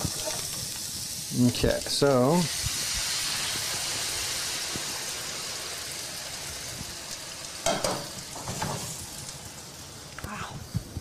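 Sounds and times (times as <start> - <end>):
vegetables sizzling in a frying pan: 0.0 - 11.0
cookware clanking on stove: 7.6 - 8.9.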